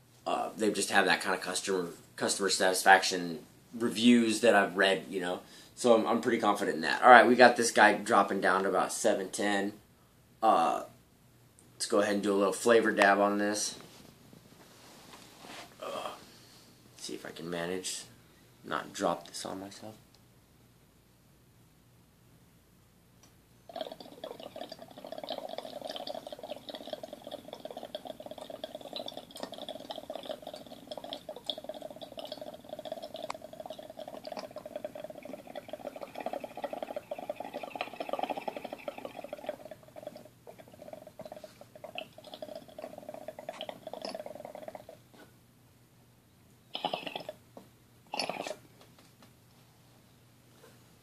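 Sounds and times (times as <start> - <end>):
water bubbling in glass pipe: 23.7 - 45.0, 46.7 - 47.4, 48.1 - 48.6.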